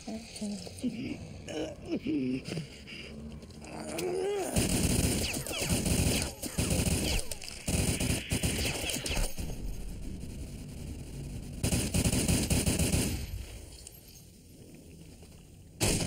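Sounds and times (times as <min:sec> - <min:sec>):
crackling gunfire-like bursts: 0:04.5 - 0:13.7, 0:15.8 - 0:16.0.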